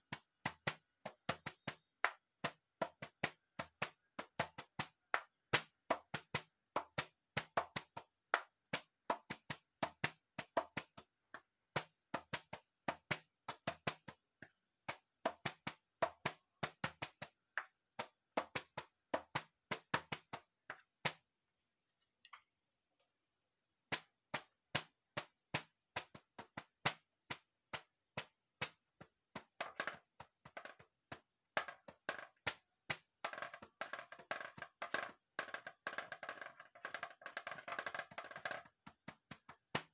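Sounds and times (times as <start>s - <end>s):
hand taps on percussion instrument: 0.0s - 21.2s, 23.9s - 39.9s.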